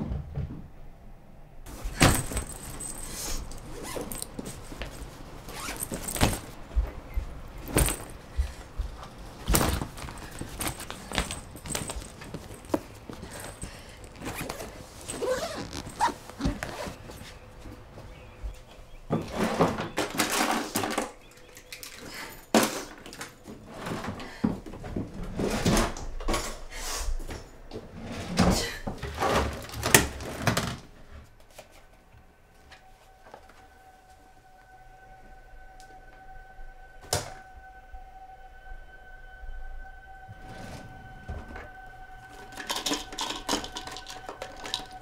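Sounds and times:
luggage handling rustles and thuds: 1.7s - 26.6s, 27.2s - 31.9s
faint two-note tone: 32.0s - 45.0s.

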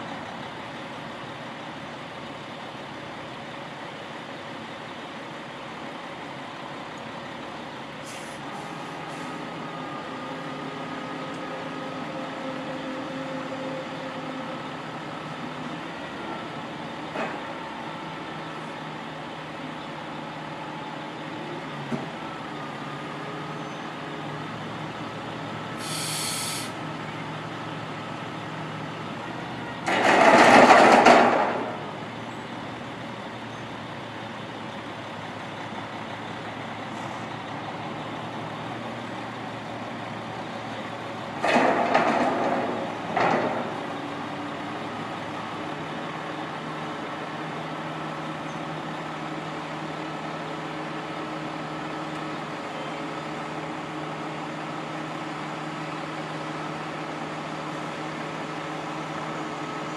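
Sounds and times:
diesel truck engine running: 0.0s - 59.9s
air hissing: 25.8s - 26.8s.

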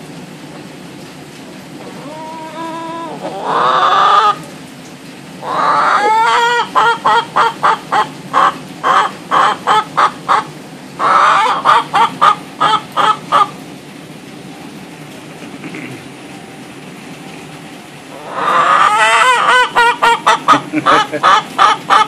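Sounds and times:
hen squawking: 1.8s - 4.4s, 5.4s - 13.5s, 18.1s - 22.0s
hen clucking: 1.8s - 4.5s, 5.4s - 13.6s, 18.1s - 22.0s.

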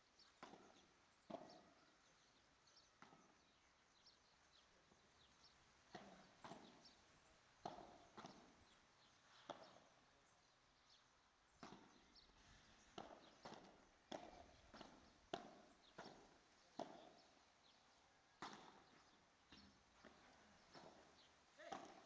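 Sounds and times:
padel ball hits and bounces: 5.9s - 6.9s, 7.6s - 8.6s, 13.0s - 17.3s, 18.4s - 22.0s.

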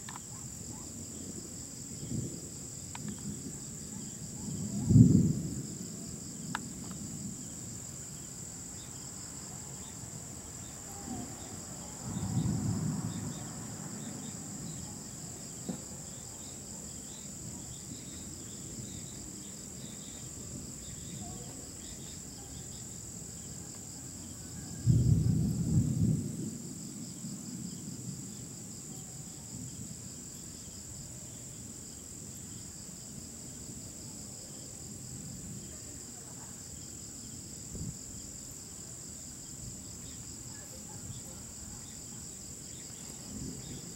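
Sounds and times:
crickets chirring: 0.0s - 43.9s
distant thunder rumbling: 0.1s - 23.6s, 24.5s - 31.0s, 42.6s - 43.9s.

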